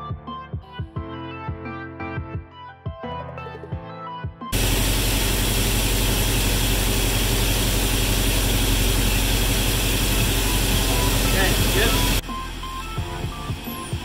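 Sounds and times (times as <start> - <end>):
car engine idling: 4.6 - 14.0.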